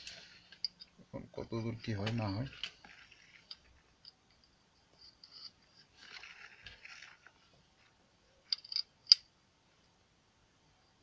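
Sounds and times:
scraping and crunching handling: 5.4 - 8.8.

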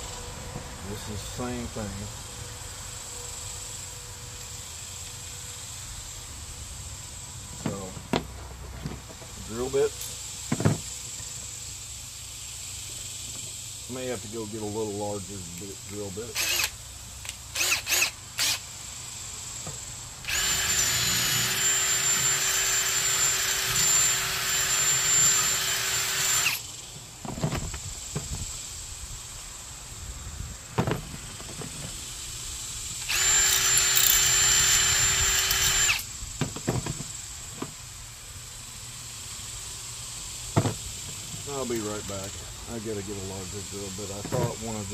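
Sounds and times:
cordless drill whining into metal: 16.3 - 18.6, 20.2 - 26.6, 33.0 - 36.1.

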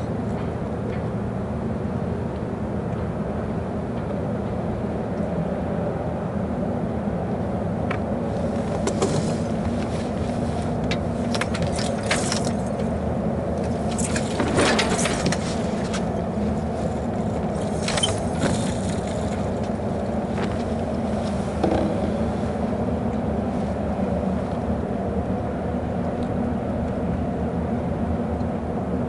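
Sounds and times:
wind and water rumble: 0.0 - 29.0
person moving about cockpit: 7.8 - 24.7
deck gear clicking and rattling: 8.4 - 22.3.

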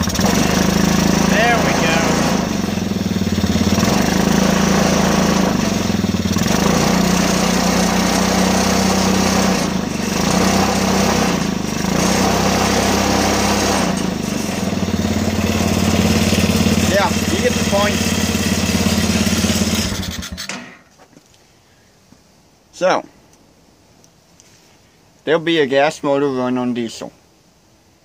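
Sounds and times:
small engine running: 0.0 - 20.7.

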